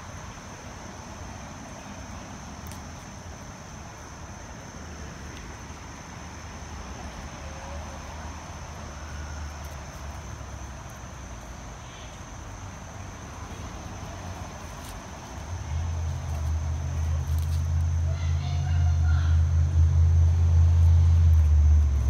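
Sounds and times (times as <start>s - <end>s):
insects trilling: 0.0s - 22.0s
low rumble of wind or traffic: 0.0s - 22.0s.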